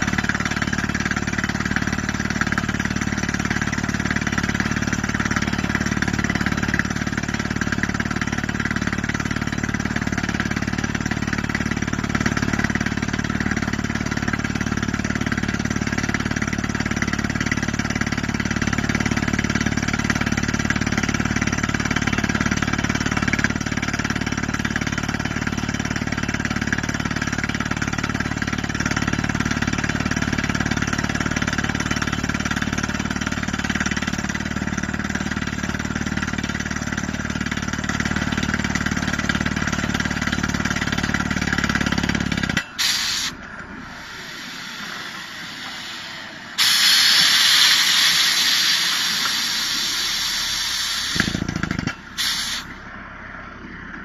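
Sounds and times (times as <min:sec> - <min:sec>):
drilling rig drilling into rock: 0:37.4 - 0:52.7
hiss: 0:42.8 - 0:51.5, 0:52.2 - 0:52.7
loud rush of air: 0:42.8 - 0:51.5
burst of air: 0:42.8 - 0:51.6, 0:52.2 - 0:52.7.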